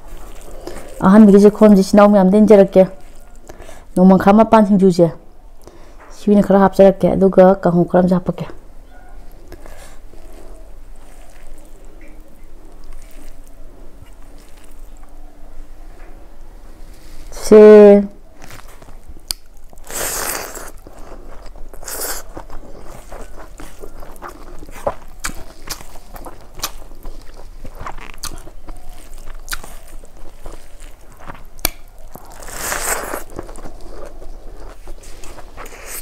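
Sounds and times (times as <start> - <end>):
close chewing with mouth clicks: 0.0 - 1.7, 9.0 - 15.8, 18.4 - 36.0.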